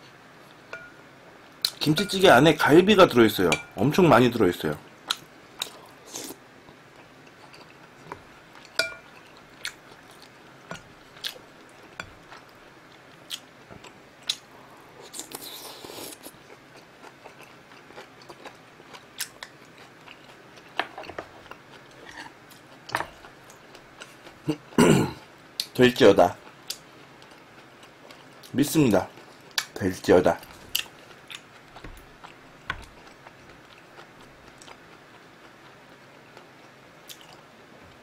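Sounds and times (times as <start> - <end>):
man chewing and eating: 4.9 - 25.8, 26.4 - 29.8, 30.4 - 38.0.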